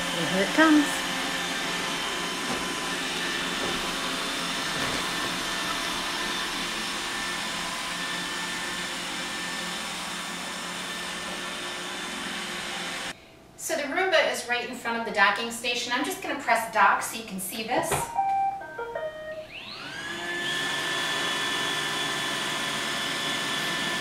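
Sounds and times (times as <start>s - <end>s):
robot vacuum whirring: 19.5s - 24.0s.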